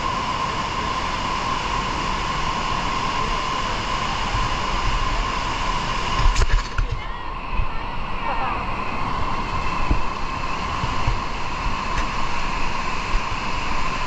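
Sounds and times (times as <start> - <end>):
water rushing in cave: 0.0 - 14.0.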